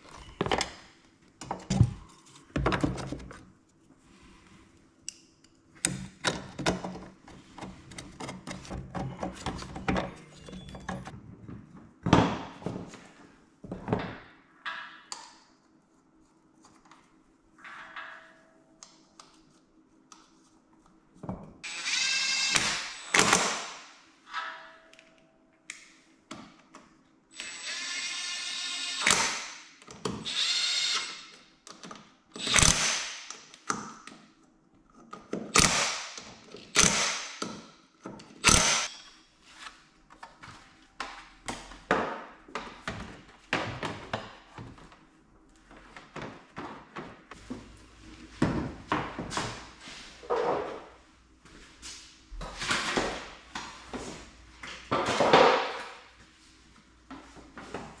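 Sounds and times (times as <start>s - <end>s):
power drill running: 21.6s - 23.2s, 27.4s - 29.2s, 30.2s - 31.2s.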